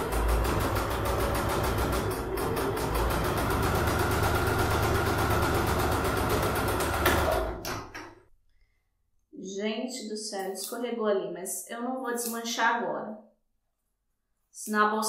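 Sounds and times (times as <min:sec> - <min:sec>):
sewing machine halting knock: 0:00.0 - 0:08.2
sewing machine stitching: 0:00.0 - 0:08.2.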